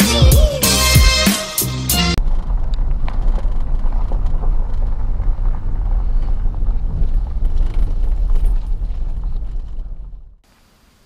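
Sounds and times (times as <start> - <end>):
vehicle rumbling on dirt road: 1.9 - 10.4.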